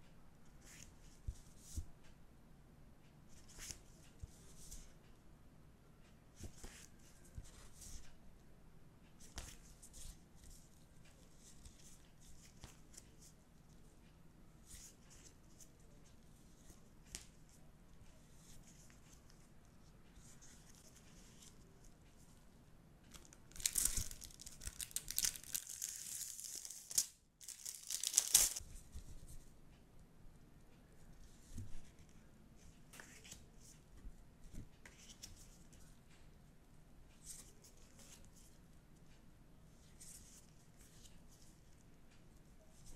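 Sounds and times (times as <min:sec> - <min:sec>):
plastic pouch crinkling: 0:23.5 - 0:28.6
plastic pouch ripping open: 0:23.5 - 0:28.6
paper sheets rustling: 0:23.6 - 0:28.6.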